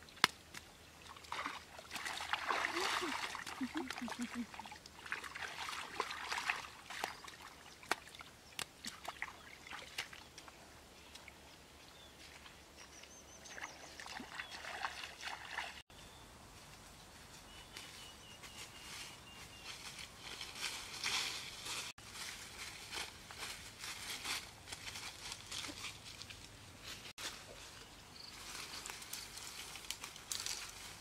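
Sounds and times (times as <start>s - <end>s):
hands splashing in muddy water: 1.0s - 10.4s, 14.0s - 15.8s.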